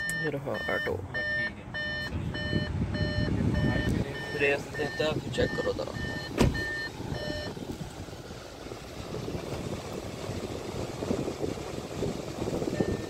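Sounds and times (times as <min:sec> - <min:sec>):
car warning chime beeping: 0:00.0 - 0:07.6, 0:12.7 - 0:13.0
car engine hum: 0:00.0 - 0:13.0
air-conditioning blower: 0:02.4 - 0:13.0.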